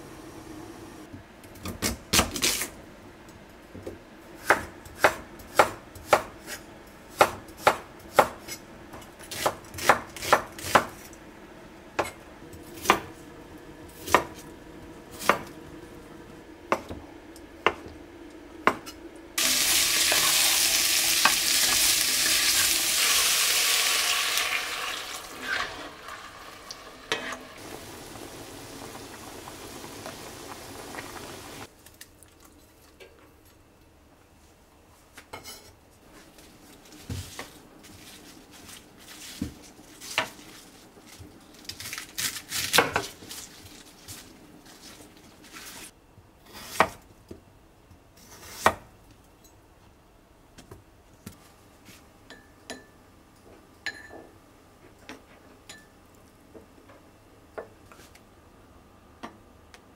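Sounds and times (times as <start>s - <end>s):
food sizzling in hot oil: 19.4s - 31.7s.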